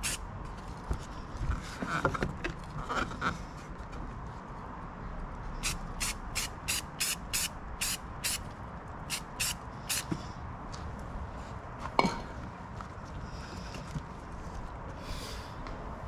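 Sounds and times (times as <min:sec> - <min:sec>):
spray paint can hissing: 0:00.0 - 0:00.2, 0:05.6 - 0:08.4, 0:09.1 - 0:10.1.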